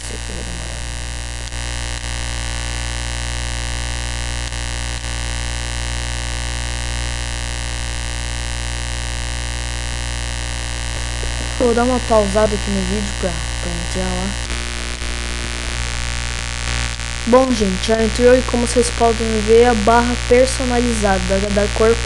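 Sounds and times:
constant hiss: 0.0s - 5.2s, 10.0s - 22.0s
electrical hum: 0.0s - 22.0s.

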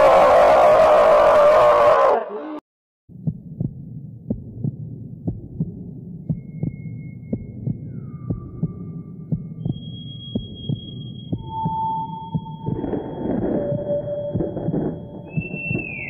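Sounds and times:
heartbeat-like double thump: 3.1s - 16.0s
low ambient drone: 3.8s - 16.0s.

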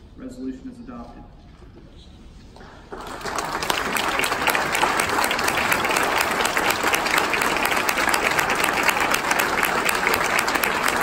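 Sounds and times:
crowd applauding: 2.9s - 11.0s.

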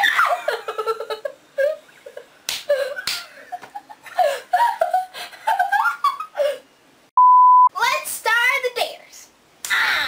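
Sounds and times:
girls laughing: 0.0s - 6.6s
sharp slaps: 2.5s - 3.7s, 9.6s - 9.8s.

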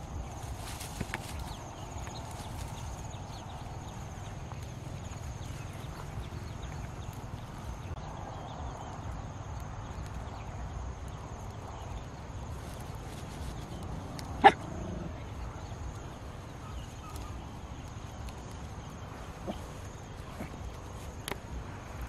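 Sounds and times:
low background noise: 0.0s - 22.0s
dog barking: 14.4s - 15.1s.

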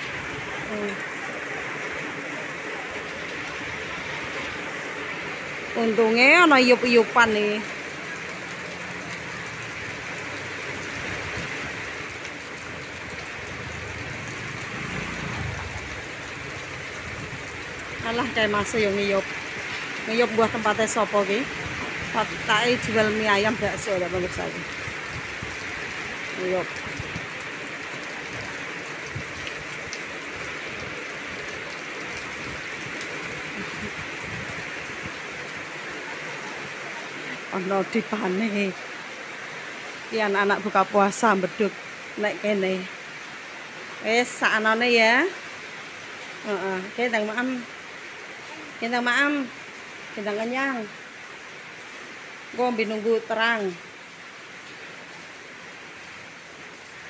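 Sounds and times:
steady rain hiss: 0.0s - 57.0s
motorcycle passing: 13.3s - 18.8s.

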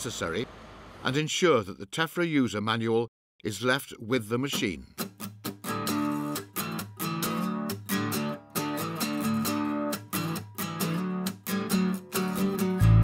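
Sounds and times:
strummed guitar chords: 5.0s - 13.0s.

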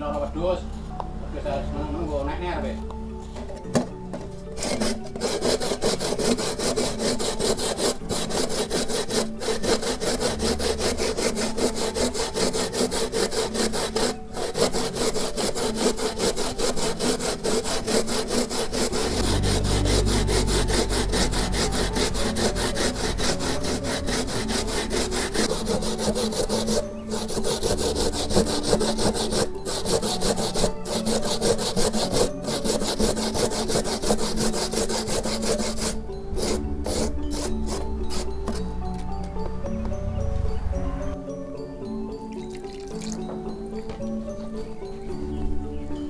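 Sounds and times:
coconut grated on metal grater: 4.5s - 38.7s.

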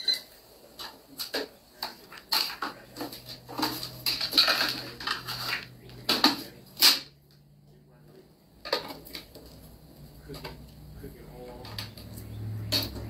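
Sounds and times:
rustling handling noise: 0.3s - 7.1s.

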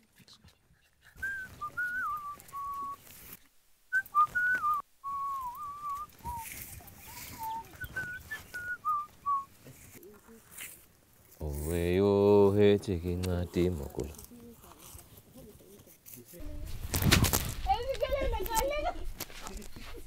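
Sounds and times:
person whistling a tune: 1.2s - 3.0s, 3.9s - 6.5s, 7.1s - 9.5s.

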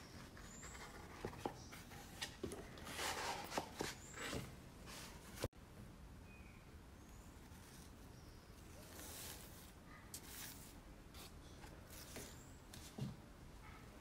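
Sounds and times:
faint bird chirps: 6.2s - 8.9s.

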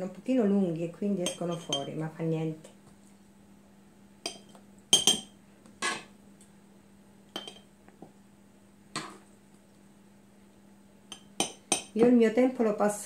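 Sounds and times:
metal spoons clinking on glass: 4.3s - 5.3s, 7.4s - 7.6s.

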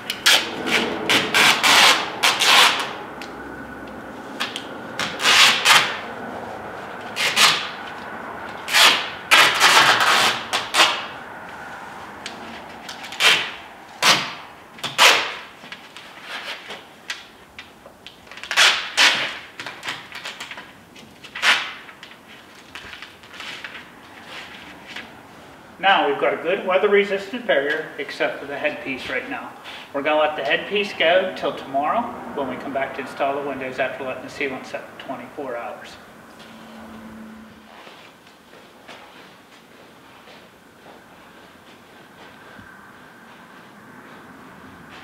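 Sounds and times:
tape pulled off roll: 0.0s - 3.4s
tape rubbed down by hand: 0.1s - 3.0s, 4.3s - 8.0s, 8.6s - 11.1s, 12.8s - 16.9s, 18.3s - 25.1s.

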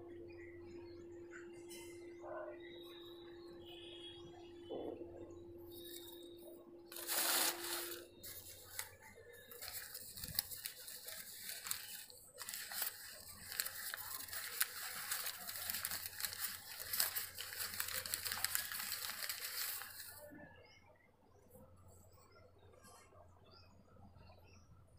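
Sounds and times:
paper crinkling and rustling: 6.9s - 20.2s.

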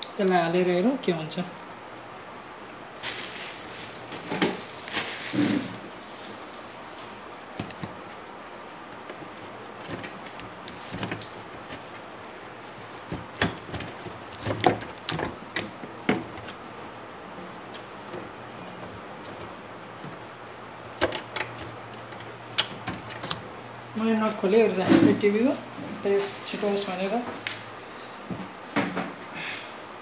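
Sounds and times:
tv casing knocks and clatter: 4.1s - 4.7s, 9.2s - 16.6s, 20.9s - 23.4s.

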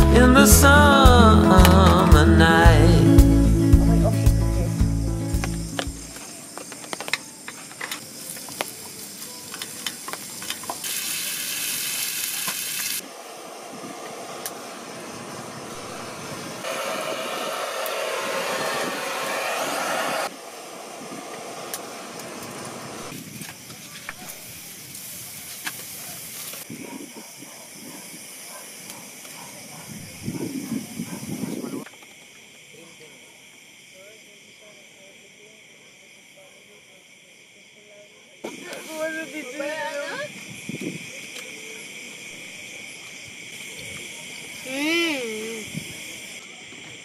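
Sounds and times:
gas torch hissing: 4.9s - 32.7s, 38.4s - 47.0s
charcoal crackling: 14.2s - 26.7s.

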